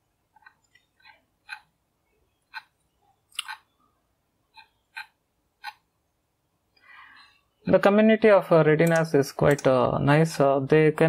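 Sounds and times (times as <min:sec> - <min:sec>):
keyboard and mouse clicks: 0:04.5 - 0:05.9, 0:08.8 - 0:09.8.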